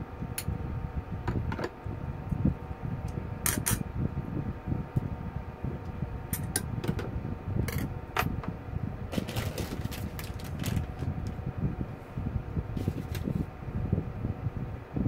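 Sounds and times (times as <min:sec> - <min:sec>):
steady low hum: 0:00.0 - 0:15.0
packet crinkling: 0:09.1 - 0:11.4.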